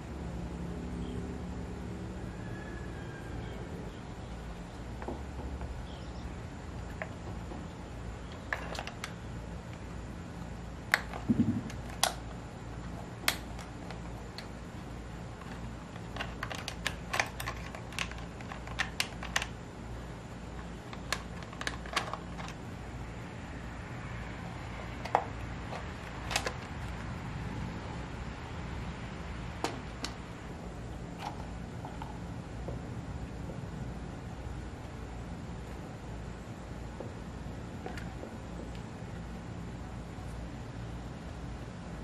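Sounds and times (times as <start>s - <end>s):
plastic parts clicking and tapping: 15.4s - 19.6s, 20.6s - 22.6s, 25.0s - 27.0s.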